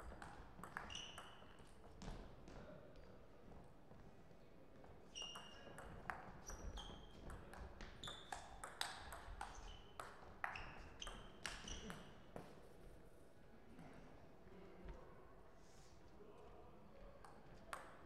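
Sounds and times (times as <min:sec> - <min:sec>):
ball pinging on table: 0:00.2 - 0:01.4.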